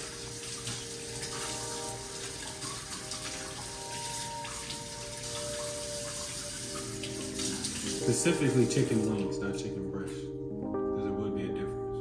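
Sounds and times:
tap water running into sink: 0.0 - 9.4
soft background music: 0.0 - 12.0.

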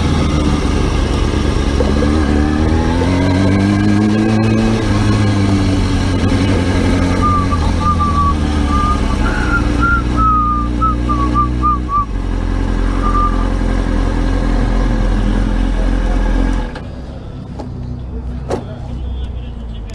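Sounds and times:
motorcycle engine idling: 0.0 - 3.2.

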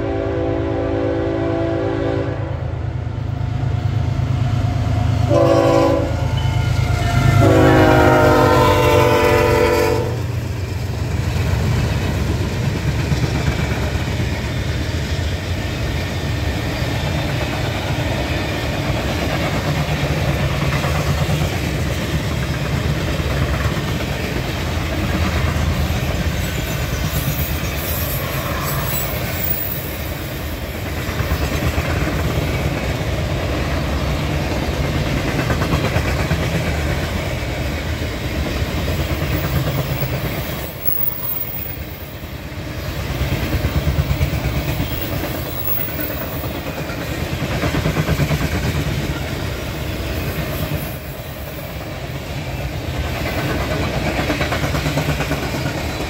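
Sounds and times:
train wheels rumbling on rail: 0.0 - 56.0
clickety-clack over rail joints: 6.7 - 56.0.

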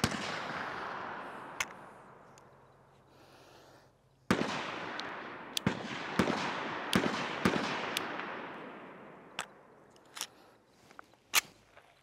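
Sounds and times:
pistol shots with echo: 0.0 - 2.2, 4.3 - 9.8.

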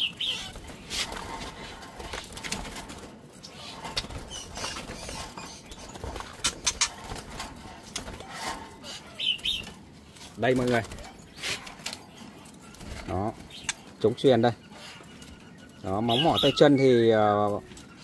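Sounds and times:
cage wire rattling: 0.0 - 14.2
birds flapping wings in cage: 0.0 - 16.6
high bird chirps: 8.8 - 9.8, 13.4 - 18.0.

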